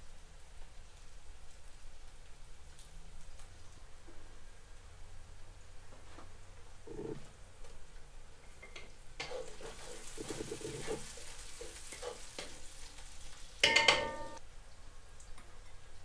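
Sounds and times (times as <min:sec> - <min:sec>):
onions sizzling in a pot: 0:00.0 - 0:05.9, 0:06.7 - 0:16.0
wooden spatula scraping a pot: 0:09.2 - 0:12.9
loud metallic clank: 0:13.6 - 0:14.4.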